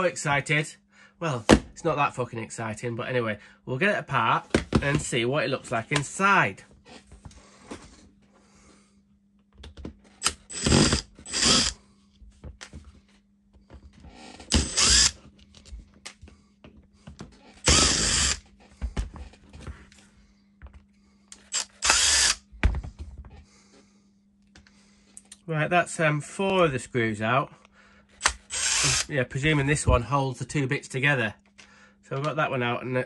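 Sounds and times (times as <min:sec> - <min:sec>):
cordless power driver running: 0:10.1 - 0:11.8, 0:14.0 - 0:15.8, 0:17.5 - 0:18.5, 0:21.3 - 0:22.5, 0:28.1 - 0:29.1.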